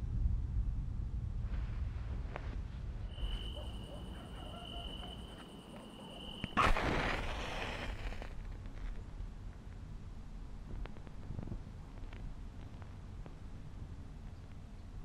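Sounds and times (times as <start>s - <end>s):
low rumble: 0.0s - 4.2s
thin steady high tone: 3.1s - 6.6s
match striking and hissing: 6.4s - 8.8s.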